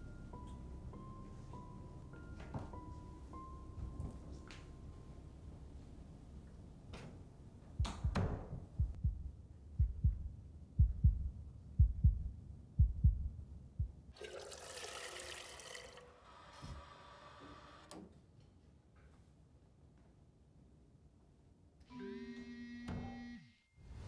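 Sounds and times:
low paired thumps: 7.8 - 14.1
toilet flushing: 14.2 - 16.5.

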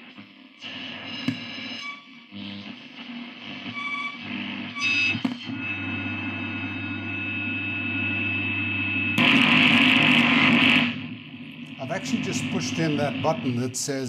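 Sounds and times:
radio hum with high whistle: 0.0 - 14.0
radio station sound and whistles: 0.6 - 2.2, 3.1 - 8.4, 11.7 - 14.0.

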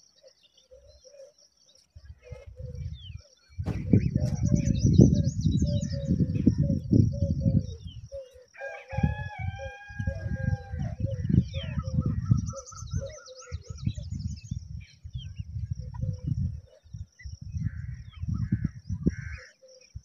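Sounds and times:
rooster crowing: 8.5 - 11.0.

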